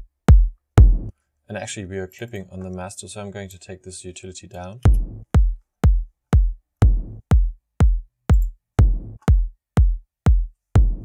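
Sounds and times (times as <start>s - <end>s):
electronic kick drum: 0.0s - 1.1s, 4.9s - 11.0s
deep low tom sample: 0.3s - 1.1s, 4.9s - 11.0s.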